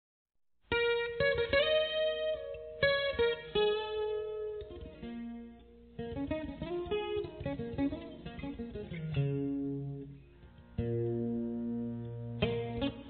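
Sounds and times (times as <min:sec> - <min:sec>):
guitar plucked notes: 0:00.7 - 0:13.0.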